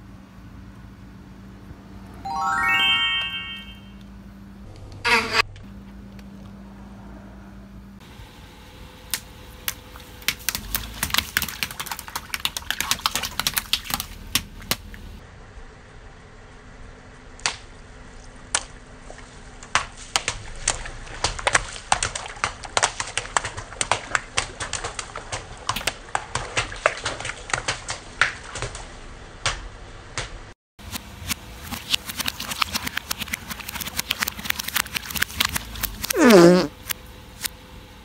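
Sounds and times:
water balloons bursting: 0:33.7 - 0:36.8.

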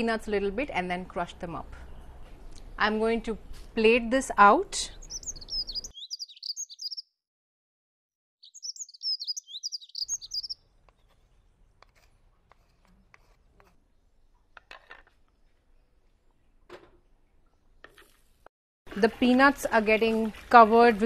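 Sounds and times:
small birds twittering: 0:04.9 - 0:07.1, 0:08.4 - 0:11.2.

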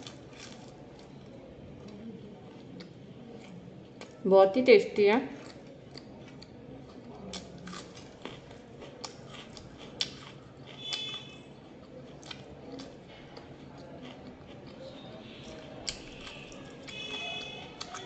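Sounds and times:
person chewing food: 0:00.0 - 0:01.2, 0:05.4 - 0:18.0.

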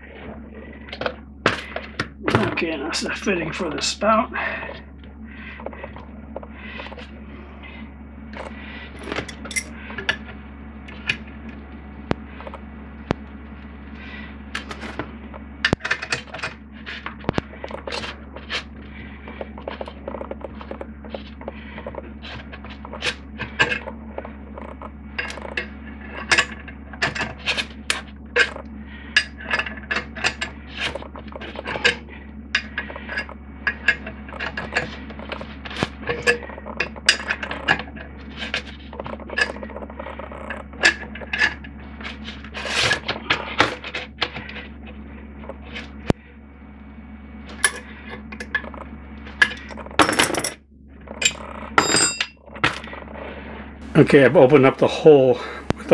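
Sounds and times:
low steady hum: 0:00.0 - 0:55.9
metal tools clinking on pipe fitting: 0:09.4 - 0:09.7.

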